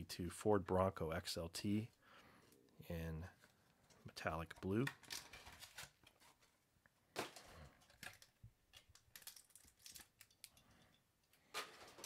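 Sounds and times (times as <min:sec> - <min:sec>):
plastic package crinkling: 0:04.8 - 0:06.5, 0:07.2 - 0:10.6.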